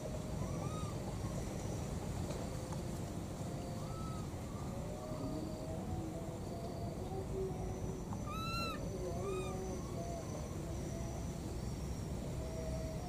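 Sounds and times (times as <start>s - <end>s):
low background noise: 0.0s - 13.0s
baby macaque coo calls: 0.4s - 1.4s, 8.1s - 10.4s.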